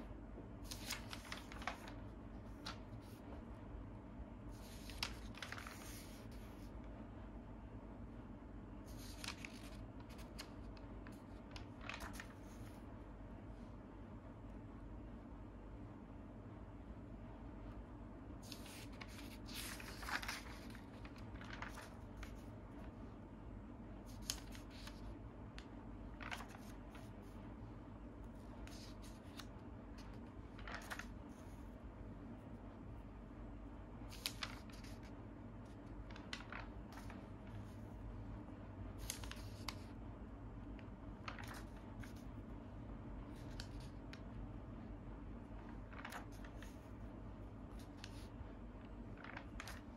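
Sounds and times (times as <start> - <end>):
faint steady hum: 0.0 - 49.9
paper pages rustling: 0.6 - 3.6, 4.5 - 6.9, 8.8 - 12.9, 18.4 - 23.0, 24.0 - 27.4, 28.2 - 31.8, 34.0 - 38.1, 38.9 - 40.0, 40.6 - 42.5, 43.2 - 44.2, 45.4 - 49.9.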